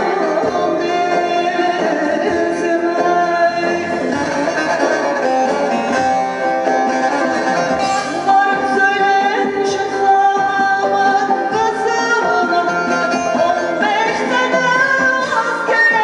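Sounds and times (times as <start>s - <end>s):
woman singing: 0.0s - 4.9s, 7.8s - 16.0s
plucked lute strings: 2.2s - 9.5s.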